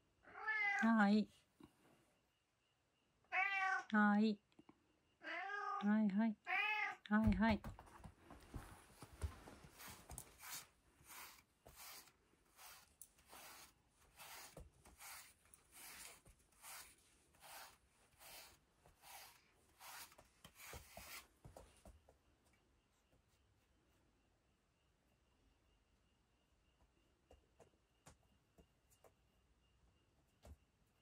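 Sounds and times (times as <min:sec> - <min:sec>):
brush strokes on cat fur: 0:08.5 - 0:21.6.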